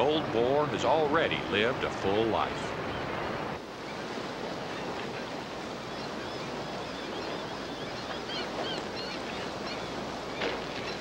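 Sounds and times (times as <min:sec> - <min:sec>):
faint high bird calls: 0:03.8 - 0:11.0.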